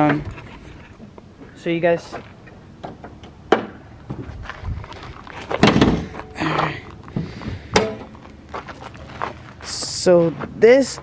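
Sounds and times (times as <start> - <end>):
car hood thunk: 5.6 - 6.1.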